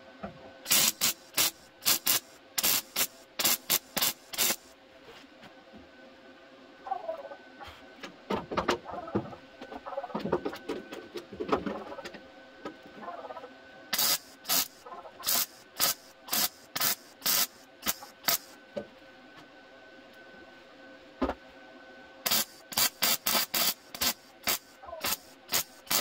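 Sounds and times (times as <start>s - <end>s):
welder crackling bursts: 0.7s - 4.7s, 13.9s - 18.6s, 22.2s - 26.0s.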